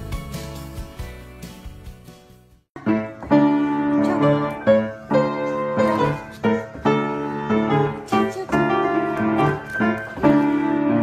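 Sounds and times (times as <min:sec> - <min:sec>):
piano chords: 0:02.8 - 0:11.0.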